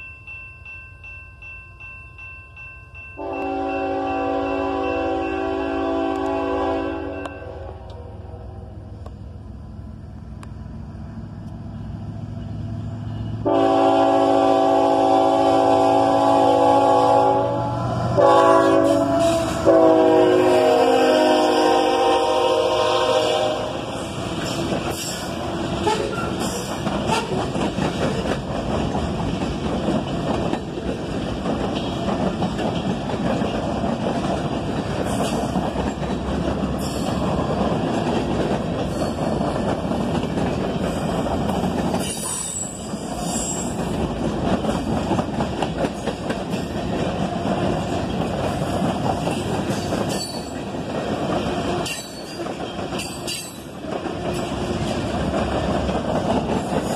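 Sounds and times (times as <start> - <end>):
locomotive horn: 3.2 - 8.6, 13.4 - 24.2, 25.8 - 26.5, 27.1 - 27.4
freight train wheels rumbling: 3.2 - 56.9
high wheel squeal: 42.0 - 43.8.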